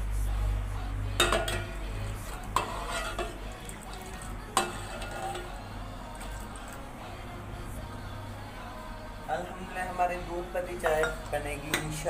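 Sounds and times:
ladle clinking against metal pot: 1.2 - 5.6, 10.8 - 12.0
ladle stirring milk in a pot: 1.2 - 7.0, 10.6 - 12.0.

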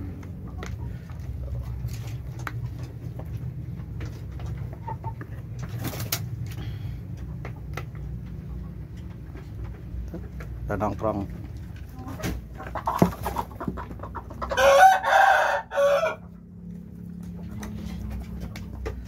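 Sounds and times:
steady low hum: 0.0 - 12.6
chickens pecking and scratching: 0.0 - 19.0.

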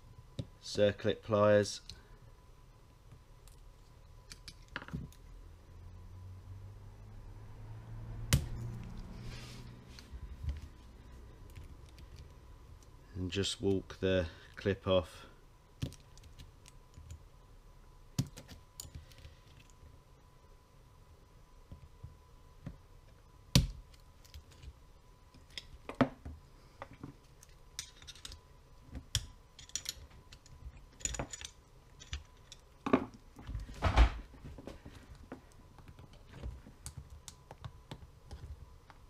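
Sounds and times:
metal tools clicking and tapping: 27.4 - 28.4, 29.1 - 33.0.

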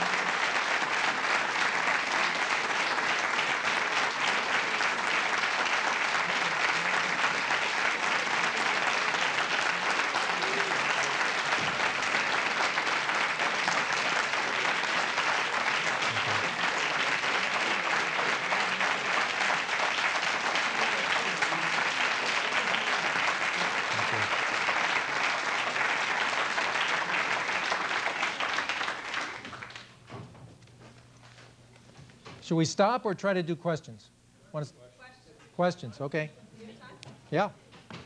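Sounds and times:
audience applauding: 0.0 - 30.1.

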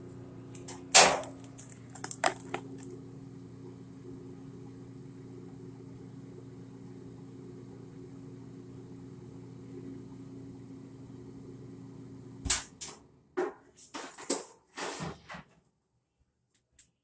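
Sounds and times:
dryer motor hum: 0.0 - 15.5.

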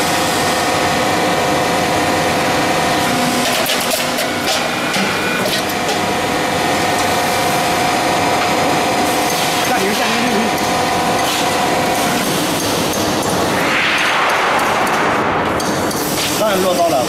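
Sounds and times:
roll forming machine humming: 0.0 - 17.0
machine clicks and rattles: 3.4 - 6.1.

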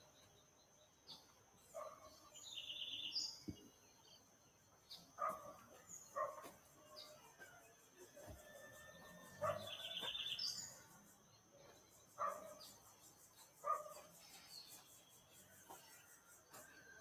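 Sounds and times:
birds calling: 0.0 - 7.2
dog barking: 1.8 - 2.2, 5.2 - 6.6, 9.4 - 9.9, 12.2 - 12.6, 13.6 - 14.1.

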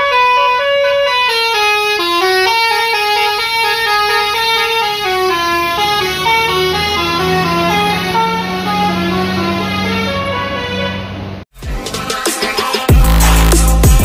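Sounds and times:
musical bus horn: 0.0 - 11.4
low engine drone: 1.0 - 11.5.

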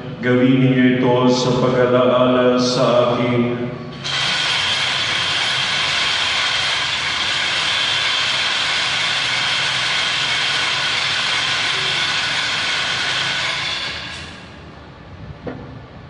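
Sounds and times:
loud rattling clatter: 4.0 - 14.6.

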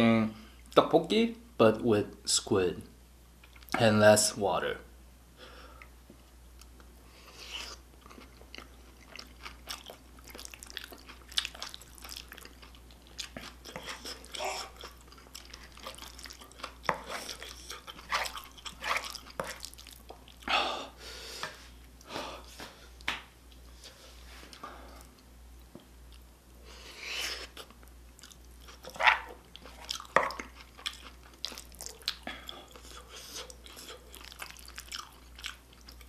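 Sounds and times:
wet chewing and mouth smacks: 8.0 - 20.5, 27.6 - 36.0.

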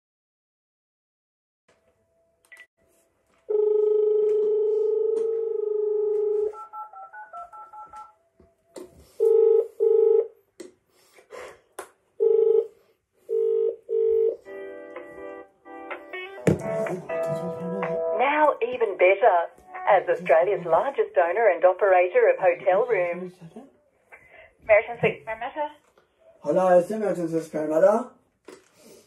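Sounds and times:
phone dial tone: 3.5 - 8.2, 9.2 - 10.3, 12.2 - 12.7, 13.3 - 14.4
recorded greeting with music: 14.4 - 18.6.

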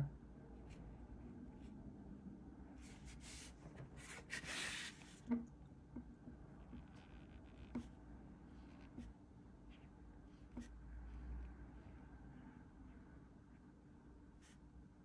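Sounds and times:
marker scratching on paper: 2.8 - 5.2, 6.7 - 9.1
paper sliding across desk: 2.8 - 5.2.

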